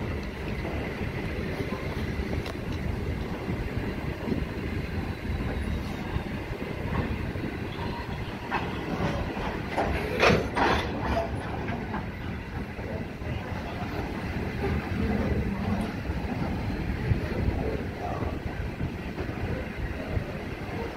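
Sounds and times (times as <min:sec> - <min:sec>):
freight train rolling past: 0:00.0 - 0:20.9.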